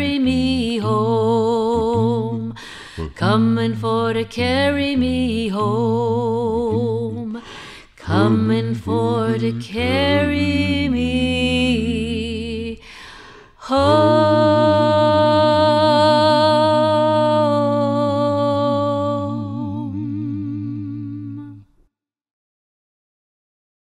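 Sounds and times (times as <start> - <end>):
person singing: 0.0 - 12.8, 13.6 - 21.7
person humming with vibrato: 0.4 - 3.8, 5.5 - 7.4, 8.0 - 12.8, 13.7 - 21.6
person breathing in: 2.6 - 3.2, 7.4 - 8.0, 12.8 - 13.6.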